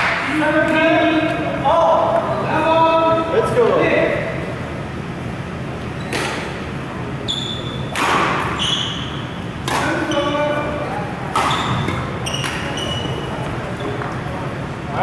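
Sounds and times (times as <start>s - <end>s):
shoes squeaking on floor: 5.9s - 6.2s, 7.2s - 7.9s, 8.5s - 10.5s, 11.4s - 14.3s
rackets hitting shuttlecock: 6.0s - 6.6s, 7.9s - 10.3s, 11.3s - 14.2s.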